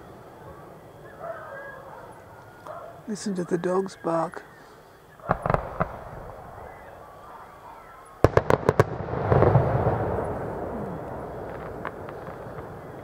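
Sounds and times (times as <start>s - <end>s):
rumbling crackle: 5.2s - 7.0s, 8.2s - 13.0s
distant fireworks banging: 5.2s - 13.0s.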